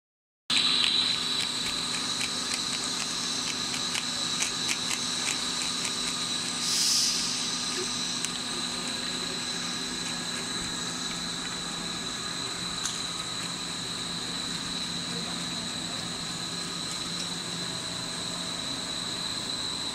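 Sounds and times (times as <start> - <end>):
machine whine and hum: 0.5 - 19.9
brief hiss: 6.6 - 7.5.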